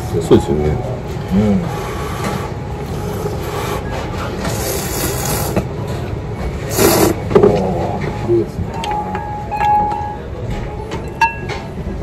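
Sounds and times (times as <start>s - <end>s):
person slurping noodles: 4.4s - 5.7s, 6.6s - 7.3s.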